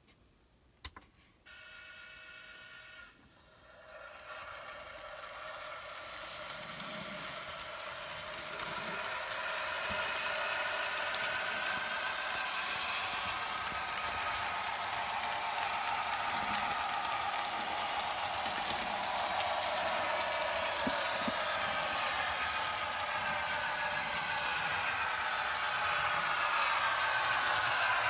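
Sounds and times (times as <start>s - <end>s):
model steam locomotive running: 1.5s - 28.0s.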